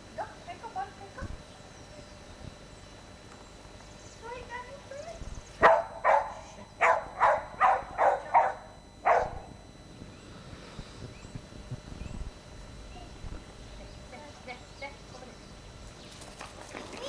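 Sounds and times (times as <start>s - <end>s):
dog barking: 5.6s - 9.5s.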